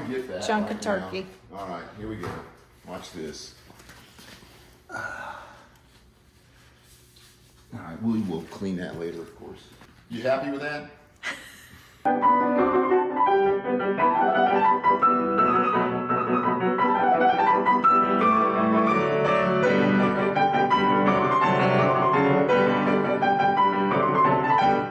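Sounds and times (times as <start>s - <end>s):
lively piano music: 12.1s - 24.9s.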